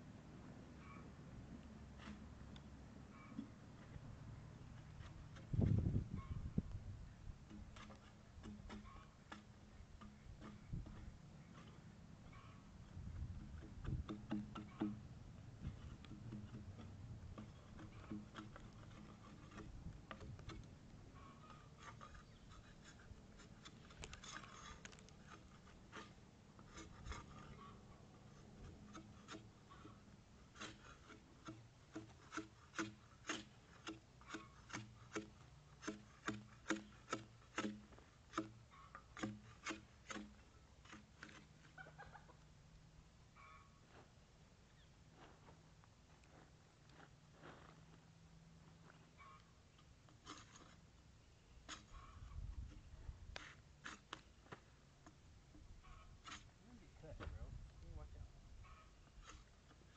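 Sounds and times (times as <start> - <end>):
hand tool scraping bark: 1.9 - 3.6, 4.6 - 6.5, 7.4 - 12.7, 13.4 - 42.0, 48.9 - 55.2, 55.8 - 56.8, 58.6 - 59.9.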